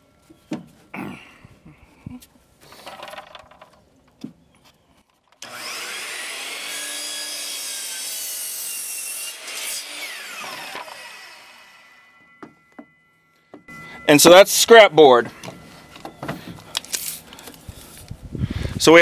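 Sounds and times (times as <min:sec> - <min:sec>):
miter saw cutting wood: 0:05.4 - 0:12.2.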